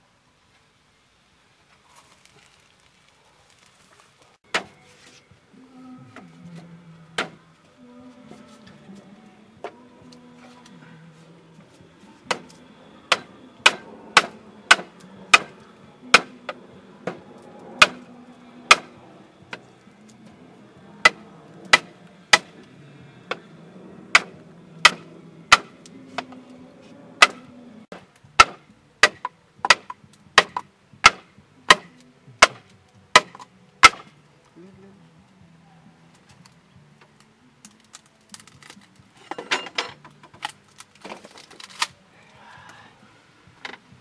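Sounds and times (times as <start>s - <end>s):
machete chopping bamboo: 7.2s - 7.4s, 12.3s - 17.2s, 17.8s - 18.0s, 18.7s - 18.9s, 21.0s - 22.6s, 24.1s - 26.3s, 27.2s - 34.1s.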